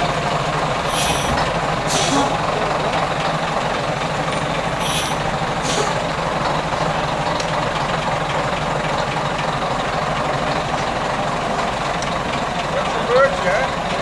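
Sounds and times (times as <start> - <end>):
diesel truck engines idling: 0.0 - 14.0
air hissing: 0.9 - 2.4, 4.8 - 6.0.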